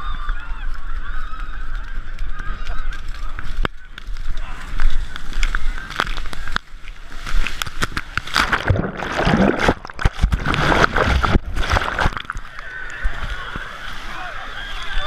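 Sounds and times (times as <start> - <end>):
sea water splashing: 5.4 - 15.0
churning whitewater sloshing: 8.2 - 15.0.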